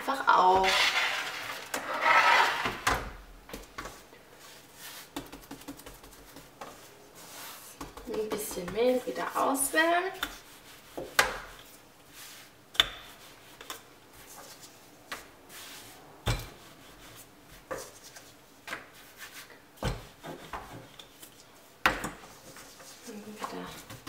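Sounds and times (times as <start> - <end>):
rolling pin rubbing dough: 0.6 - 2.8.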